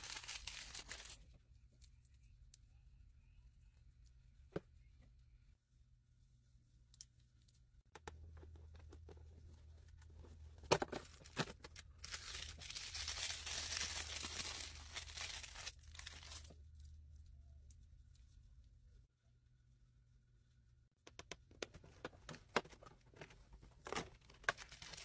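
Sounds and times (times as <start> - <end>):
paper tearing and crinkling: 0.0 - 1.2, 12.0 - 16.5.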